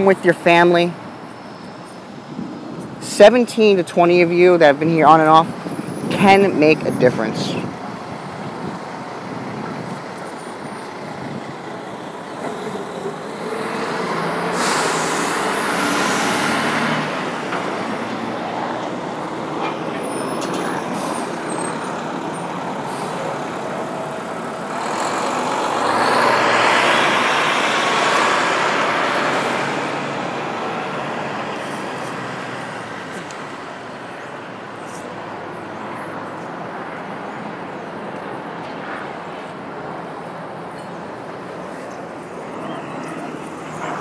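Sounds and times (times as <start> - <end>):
road traffic passing: 0.0 - 44.0.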